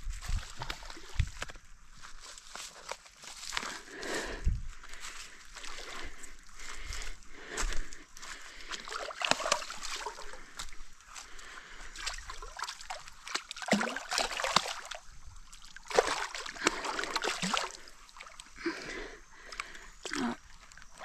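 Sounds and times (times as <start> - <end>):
fish thrashing and splashing water: 8.6 - 11.2, 11.8 - 18.6.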